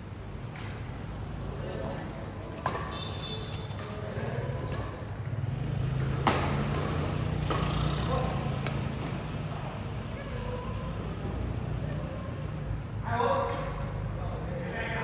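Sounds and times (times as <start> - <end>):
shoes squeaking on court floor: 1.4 - 12.6
rackets hitting shuttlecock: 2.4 - 10.4.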